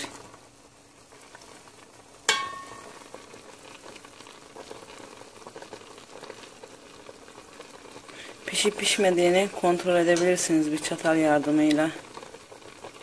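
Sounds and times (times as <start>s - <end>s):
syrup bubbling in a pot: 0.0s - 13.0s
metal spoon clinking on pot: 2.3s - 2.9s.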